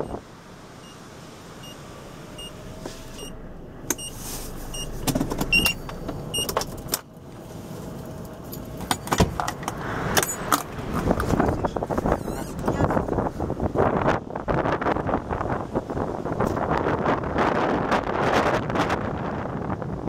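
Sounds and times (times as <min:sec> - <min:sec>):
wind gusts buffeting car: 0:00.0 - 0:20.0.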